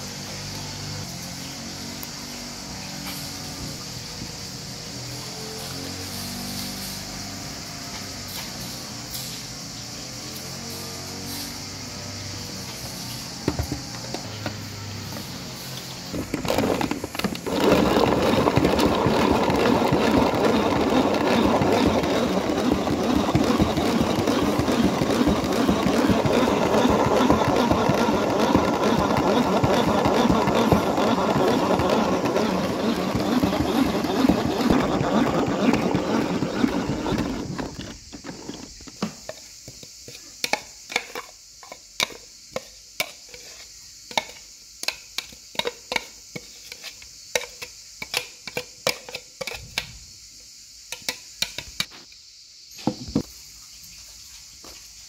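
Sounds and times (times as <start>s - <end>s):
electric food chopper running: 12.8s - 38.8s.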